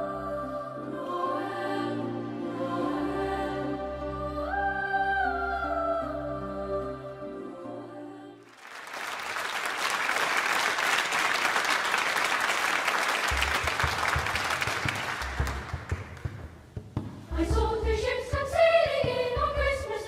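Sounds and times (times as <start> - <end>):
audience applauding: 8.4 - 16.4.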